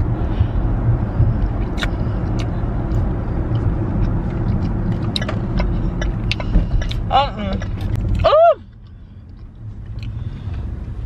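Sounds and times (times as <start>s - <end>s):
car cabin road and engine noise: 0.0s - 11.0s
chewing clicks: 1.6s - 8.2s.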